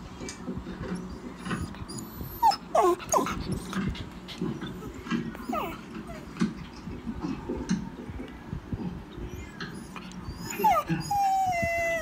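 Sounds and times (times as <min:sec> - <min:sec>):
dog whimpering: 0:01.0 - 0:03.7, 0:04.5 - 0:06.4, 0:09.3 - 0:12.0.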